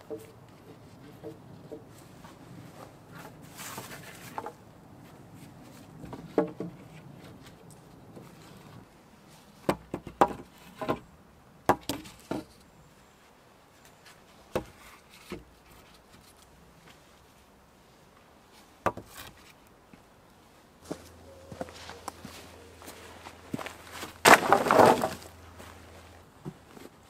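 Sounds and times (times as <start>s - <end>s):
wooden poles knocking: 9.7s - 11.0s.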